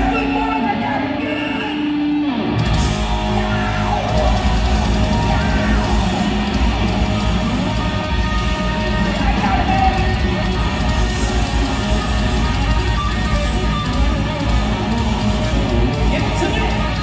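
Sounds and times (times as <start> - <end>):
live hard rock band: 0.0 - 17.0.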